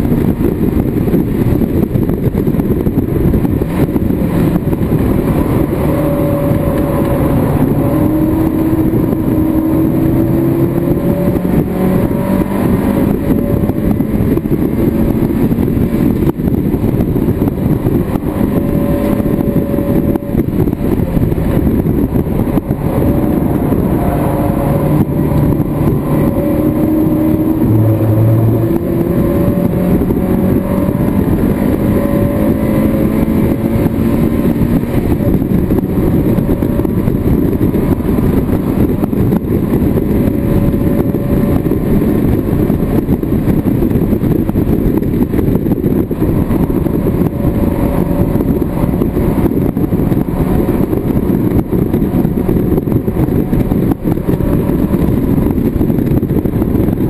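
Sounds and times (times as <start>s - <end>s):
wind and road noise: 0.0s - 57.0s
race car engine accelerating: 0.2s - 57.0s.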